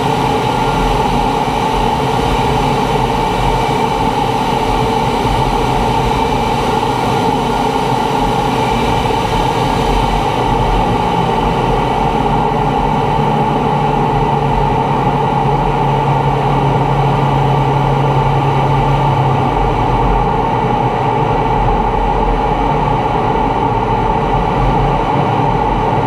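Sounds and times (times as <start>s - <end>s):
constant whine: 0.0s - 26.0s
jet engine in flight: 0.0s - 26.0s.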